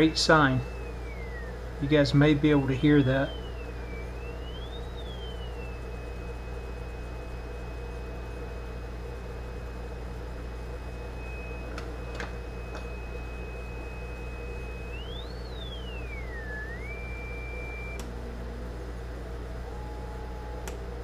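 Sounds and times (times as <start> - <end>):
high test tone from speaker: 0.0 - 8.8, 10.7 - 18.0
steady low hum: 0.0 - 21.0.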